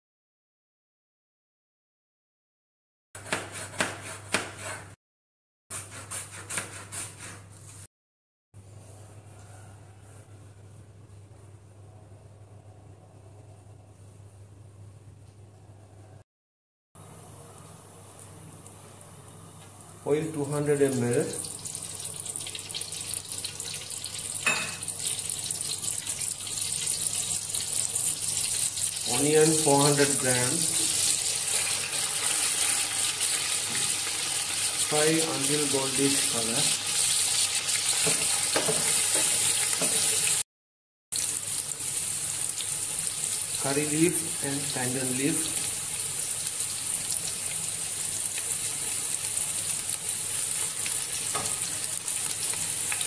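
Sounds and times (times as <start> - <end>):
knife slicing on cutting board: 3.2 - 4.9, 5.7 - 7.8
oil hissing in a pot: 20.7 - 40.4, 41.2 - 53.0.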